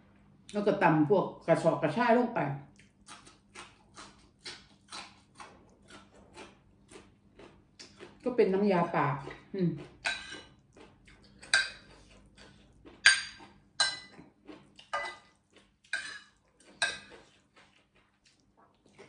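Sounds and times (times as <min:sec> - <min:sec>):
metal spoon clinking on plate: 0:11.5 - 0:11.9, 0:13.1 - 0:14.2, 0:15.0 - 0:15.2, 0:16.0 - 0:17.1.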